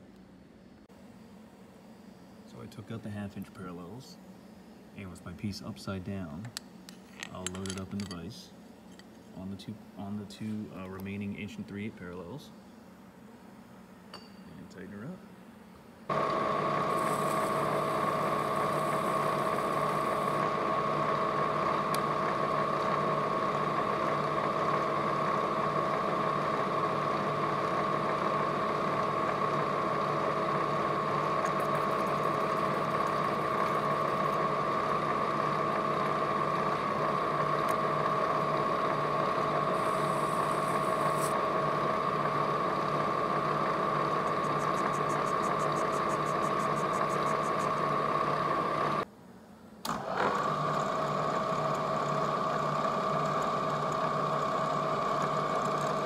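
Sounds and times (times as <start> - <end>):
milling machine spindle whine: 16.1 - 49.1, 49.9 - 56.0.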